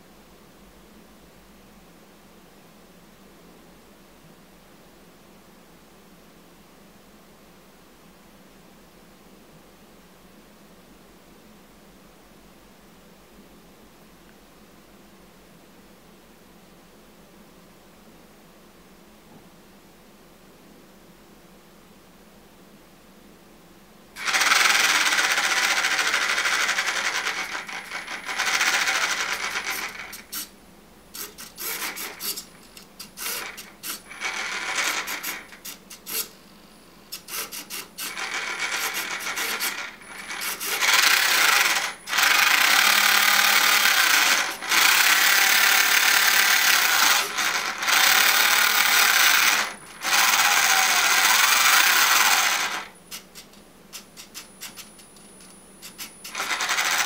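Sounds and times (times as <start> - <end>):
small electric motor and gears whirring: 24.2 - 57.0.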